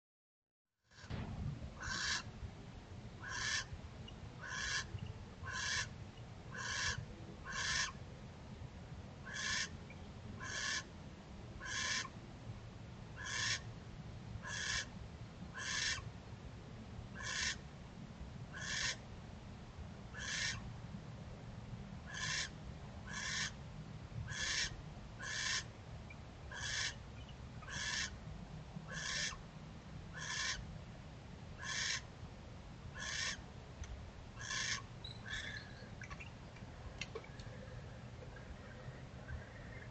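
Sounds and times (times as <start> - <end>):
low background rumble: 1.0 - 39.9
owl raspy calls: 1.8 - 2.3, 3.2 - 3.7, 4.4 - 8.0, 9.2 - 9.8, 10.4 - 10.9, 11.6 - 12.2, 13.2 - 13.7, 14.4 - 14.9, 15.5 - 16.1, 17.2 - 17.6, 18.5 - 19.0, 20.1 - 20.6, 22.0 - 23.6, 24.3 - 25.7, 26.5 - 27.0, 27.6 - 28.2, 28.9 - 29.4, 30.1 - 30.6, 31.6 - 32.1, 32.9 - 33.4, 34.4 - 35.9.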